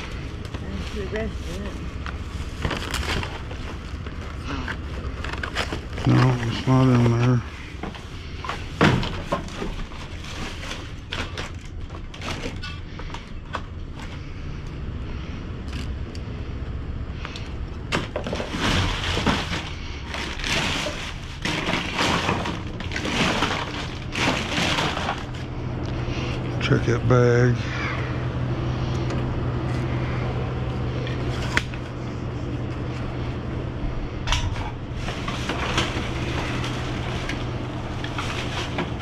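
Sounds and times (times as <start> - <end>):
knocks and clatters: 17.9 - 25.4.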